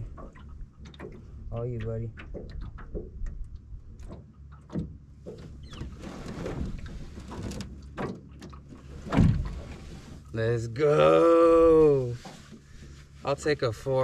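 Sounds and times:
water sloshing against boat: 0.0 - 14.0
low thump: 9.1 - 9.6.

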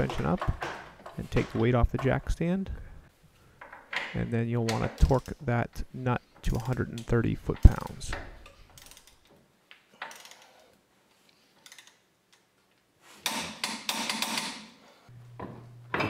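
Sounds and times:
torque wrench ratcheting clicks: 8.8 - 9.2.

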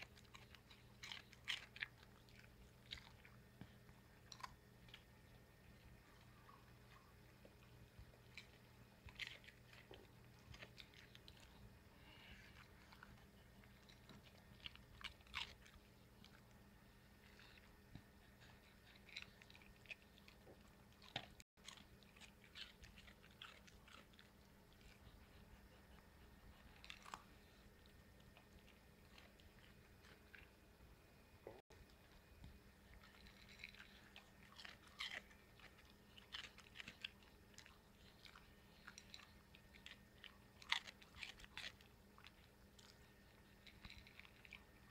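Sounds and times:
dog crunching dry food: 0.0 - 6.0, 7.1 - 16.5, 18.4 - 25.4, 32.8 - 44.9.

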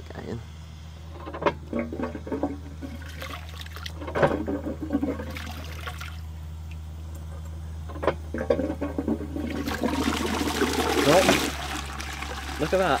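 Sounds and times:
toilet flush water rushing: 8.3 - 13.0.

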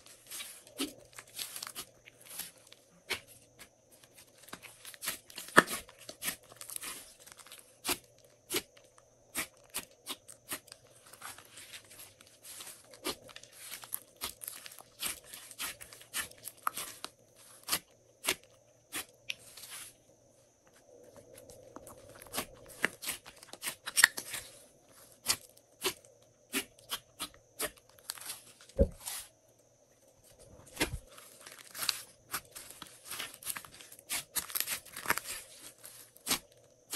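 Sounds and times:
sticky slime squishing: 0.0 - 19.9, 21.7 - 24.4, 30.6 - 36.9.

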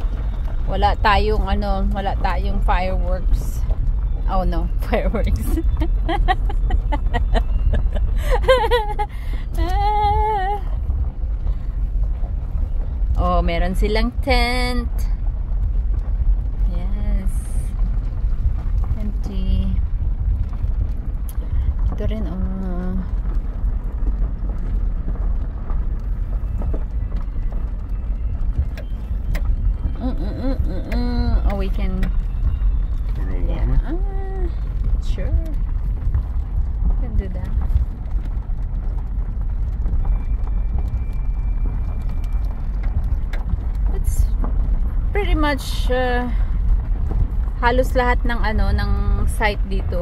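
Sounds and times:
gravel clicking under tyres: 0.0 - 50.0
road and engine rumble: 0.0 - 50.0.

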